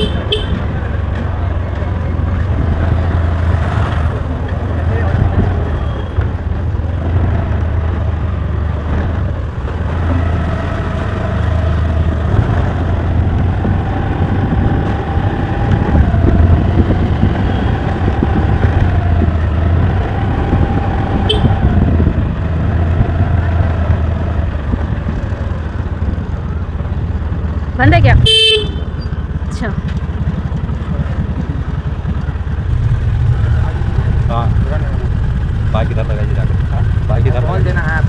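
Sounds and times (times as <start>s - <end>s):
motor scooter engine: 0.0s - 38.0s
wind rumble on microphone: 8.9s - 28.3s.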